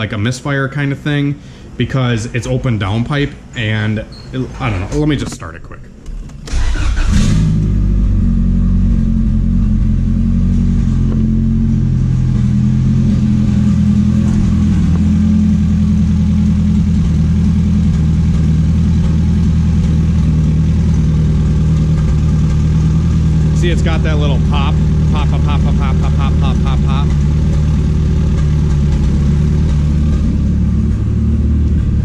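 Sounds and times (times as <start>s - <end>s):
car engine starting and idling: 5.0s - 32.0s
engine popping: 6.4s - 32.0s.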